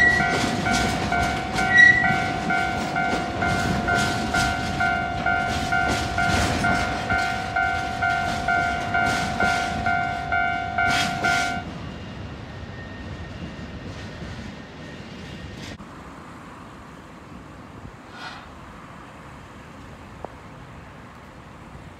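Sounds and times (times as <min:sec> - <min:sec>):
two-tone level crossing alarm: 0:00.0 - 0:11.6
train wheels clacking on rail joints: 0:00.0 - 0:11.7
train rumble: 0:00.0 - 0:21.9.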